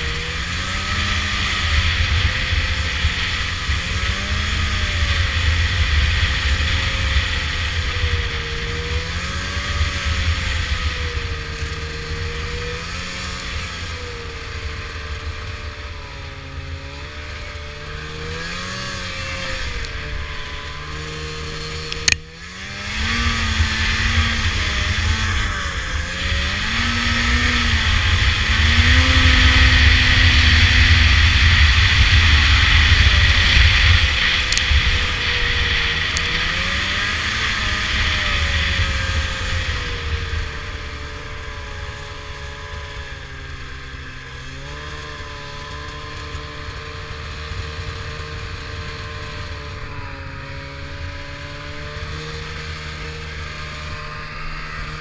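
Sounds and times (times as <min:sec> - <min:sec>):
wind noise: 0:00.0 - 0:15.6, 0:22.7 - 0:43.5
snowmobile engine running: 0:00.0 - 0:55.0.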